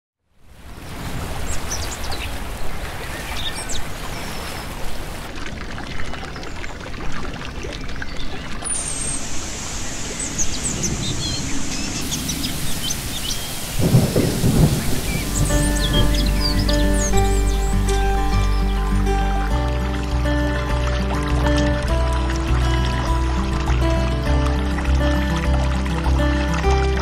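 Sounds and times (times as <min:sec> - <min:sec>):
running splashing water: 0:00.5 - 0:27.0
small birds chirping: 0:01.4 - 0:05.2, 0:08.0 - 0:21.9.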